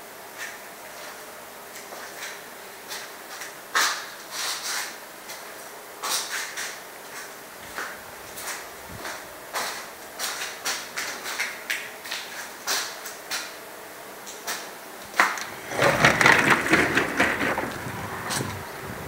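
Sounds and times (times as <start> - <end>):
glass sliding door rumbling: 15.3 - 19.0.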